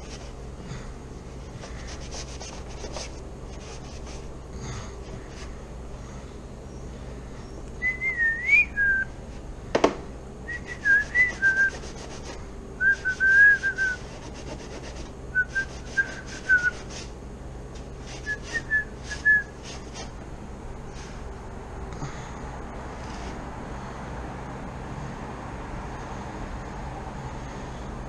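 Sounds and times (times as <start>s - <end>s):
person whistling a tune: 7.8s - 9.1s, 10.5s - 11.8s, 12.8s - 14.0s, 15.4s - 16.9s, 18.2s - 19.5s.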